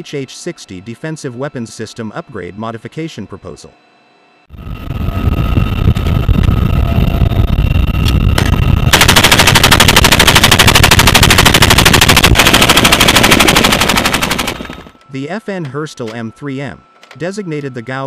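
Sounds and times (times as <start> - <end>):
helicopter cabin rumble: 4.5 - 14.9
machine gun burst: 8.4 - 15.0.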